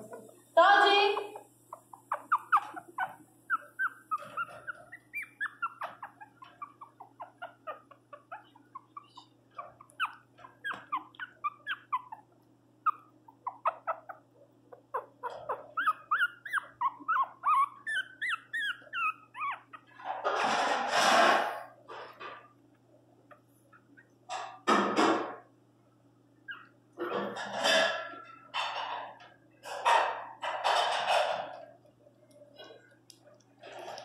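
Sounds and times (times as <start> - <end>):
puppy whimpering and yelping: 1.1 - 20.3, 26.4 - 27.4.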